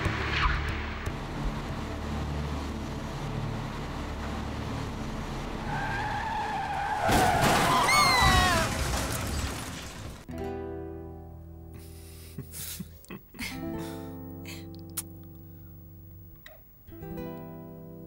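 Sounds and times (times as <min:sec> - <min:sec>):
low engine rumble: 0:00.0 - 0:06.2
car tyres screeching: 0:00.0 - 0:10.2.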